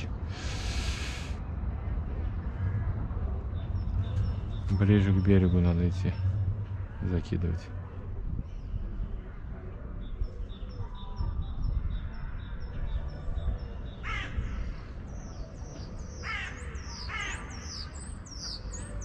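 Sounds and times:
songbird chirping: 3.4s - 7.4s
crow cawing: 14.0s - 14.6s, 16.2s - 17.8s.

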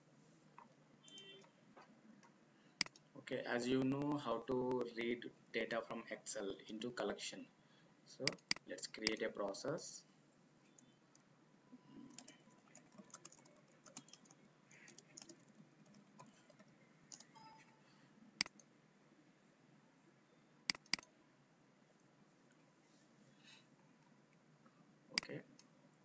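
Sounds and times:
typing on keyboard: 11.9s - 17.7s, 20.7s - 21.1s
mouse clicks: 20.7s - 21.1s.

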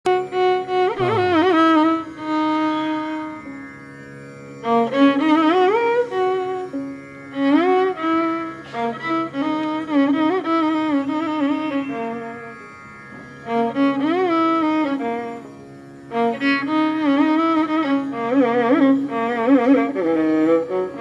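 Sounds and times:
melody with sliding pitch bends: 0.9s - 2.2s
low drone: 0.9s - 2.4s.

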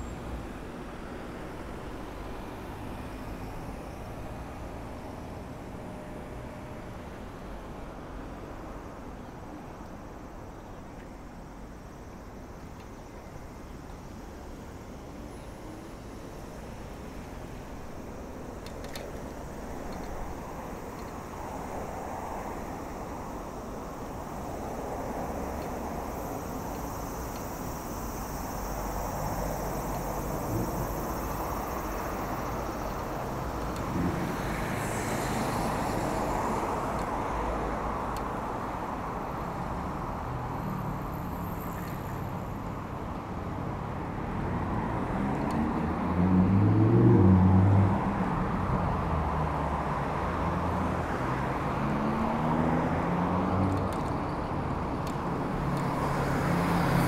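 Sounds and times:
tyre and road noise: 0.0s - 57.0s
car engines passing: 16.0s - 57.0s.

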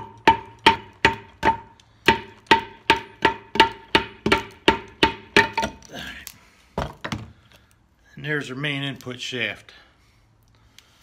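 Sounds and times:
rubber mallet hammering metal: 0.0s - 5.9s.

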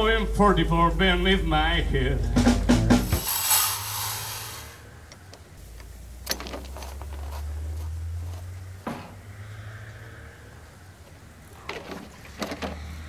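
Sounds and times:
low steady hum: 0.0s - 8.8s
high hiss: 2.8s - 5.8s.

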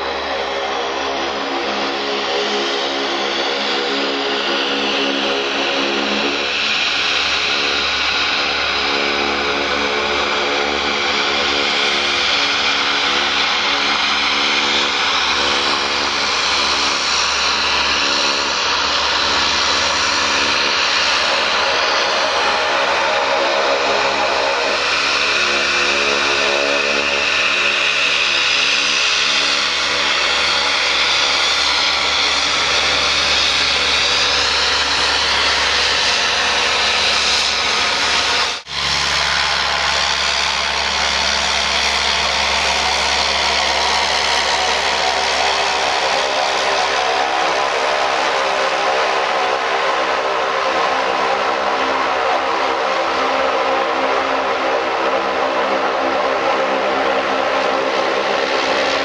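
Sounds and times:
high-pitched turbine whine: 0.0s - 59.0s
propeller drone: 0.0s - 59.0s.

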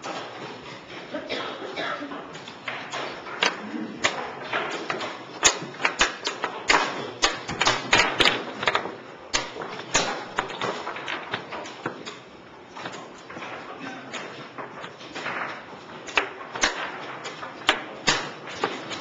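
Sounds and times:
wooden chess pieces clacking on board: 0.0s - 19.0s.

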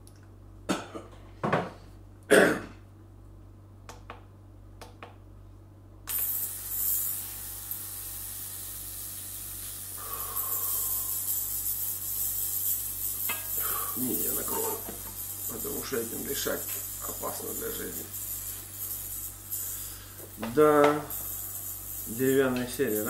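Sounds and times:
ultrasonic cleaner high-pitched hiss: 6.1s - 23.0s.

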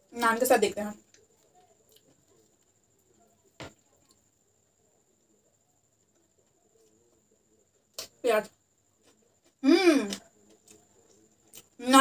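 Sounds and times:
faint high-pitched whine: 0.0s - 12.0s.

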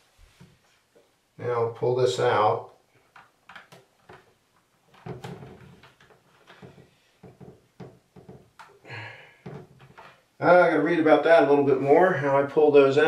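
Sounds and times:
plastic clicks and knocks: 3.0s - 8.8s.

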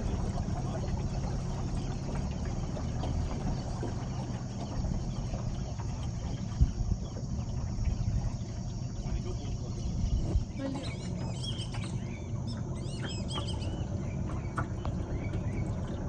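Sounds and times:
wind rumble on microphone: 0.0s - 10.8s
boat motor running: 0.0s - 16.0s.

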